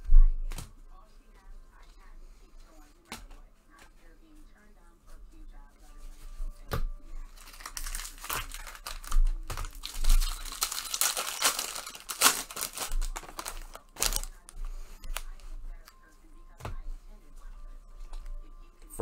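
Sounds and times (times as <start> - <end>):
foil wrapper tearing and crinkling: 7.3 - 15.3.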